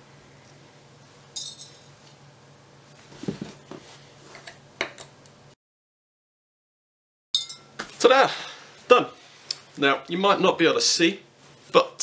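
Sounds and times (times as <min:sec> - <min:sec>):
hammer clinking on metal: 0:07.4 - 0:07.7.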